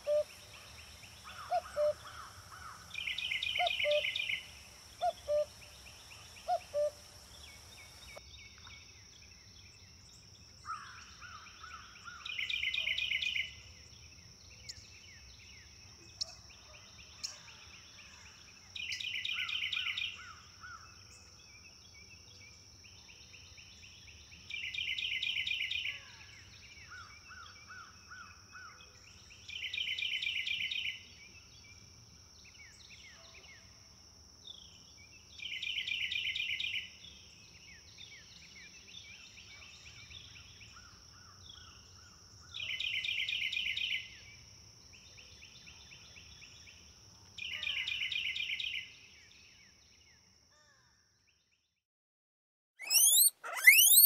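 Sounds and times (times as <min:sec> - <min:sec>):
faint calls: 0:00.0 - 0:00.3, 0:01.3 - 0:02.1, 0:05.0 - 0:05.6, 0:06.3 - 0:07.1, 0:52.8 - 0:54.0
high-pitched insect drone: 0:52.8 - 0:54.0
rapid high trill: 0:52.8 - 0:54.0.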